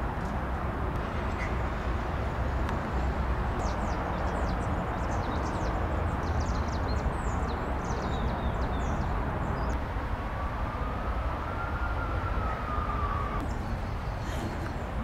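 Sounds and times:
distant city traffic rumble: 0.0s - 15.0s
small birds chirping: 3.6s - 9.8s.

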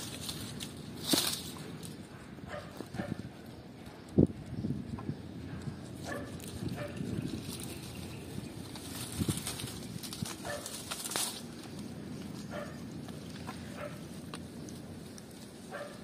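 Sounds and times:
rustling of leaves and dry grass: 0.0s - 16.0s.

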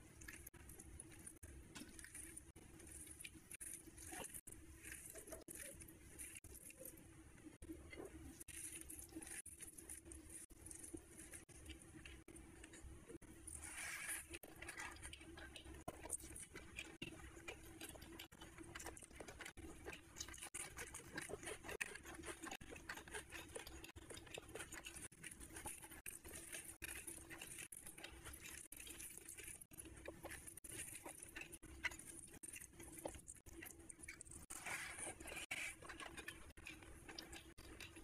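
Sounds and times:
chewing and mouth smacks: 7.6s - 38.0s.

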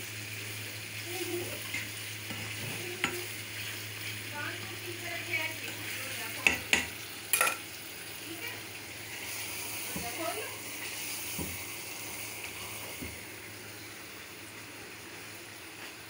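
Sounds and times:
chicken sizzling in a pot: 0.0s - 16.0s
spoon knocking against pot: 6.4s - 7.6s.

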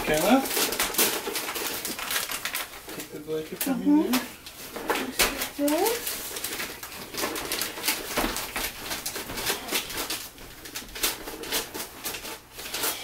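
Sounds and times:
hands slapping a present: 0.0s - 13.0s
wrapping paper crinkling: 0.0s - 13.0s.

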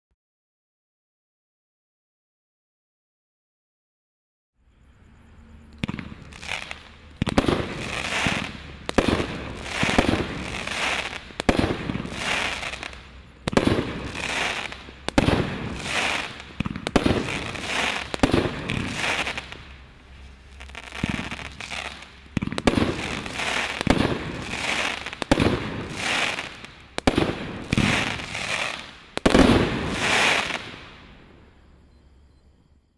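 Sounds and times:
firework shots: 5.8s - 31.5s.

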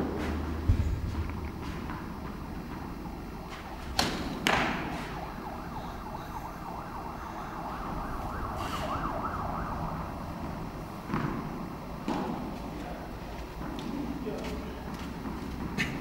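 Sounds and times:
tennis ball strikes echoing: 0.7s - 5.4s, 10.0s - 12.7s
warbling siren-like tone: 1.2s - 12.0s.

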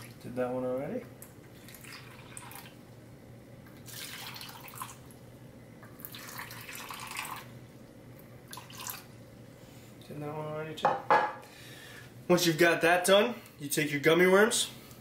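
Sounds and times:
water pouring into ice cube tray: 3.9s - 5.0s, 6.0s - 7.4s.

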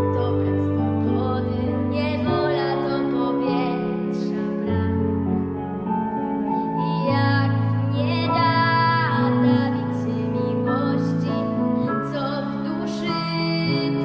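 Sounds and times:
girl singing: 0.0s - 5.2s, 6.7s - 14.0s
slow backing track chords: 0.0s - 14.0s.

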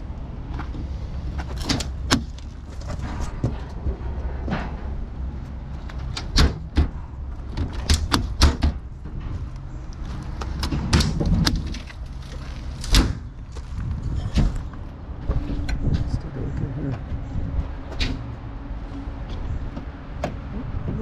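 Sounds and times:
sharp knocks and clunks: 5.8s - 9.5s, 10.4s - 12.0s.

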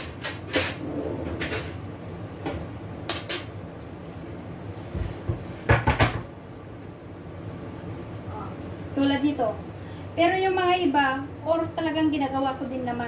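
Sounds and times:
steady low rumble: 0.8s - 3.1s
kitchenware knocks and clinks: 5.7s - 6.3s.

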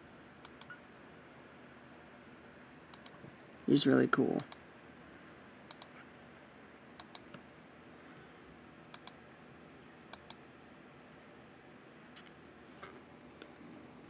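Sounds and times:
computer mouse clicking: 0.4s - 0.7s, 2.9s - 3.2s, 4.4s - 4.6s, 5.7s - 6.0s, 7.0s - 7.4s, 8.9s - 9.2s, 10.1s - 10.4s.

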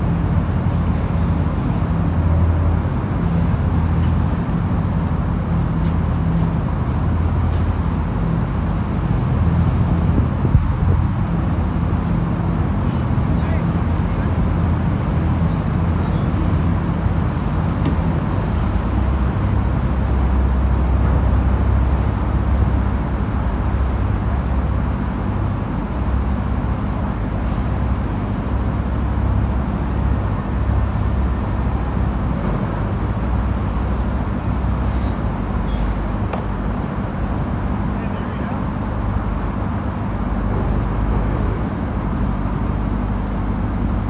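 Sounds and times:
boat engines humming: 0.0s - 44.0s
steady rush of noise: 0.0s - 44.0s.

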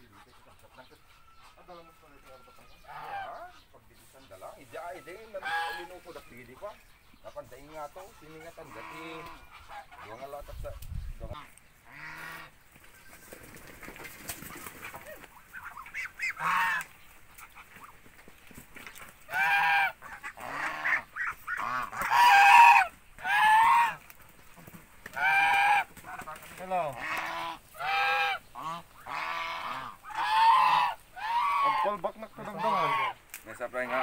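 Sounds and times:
ducks quacking loudly: 0.0s - 12.7s, 13.6s - 34.0s.

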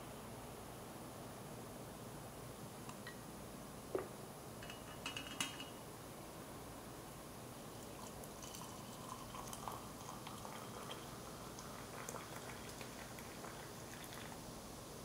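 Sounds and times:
water pouring into a glass mug: 7.7s - 14.4s.

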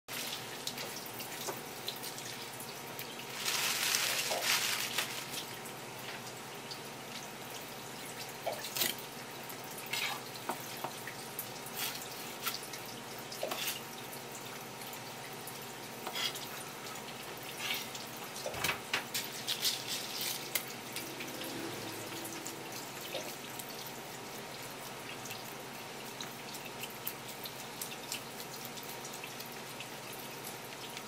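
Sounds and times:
water dripping: 20.4s - 31.0s.

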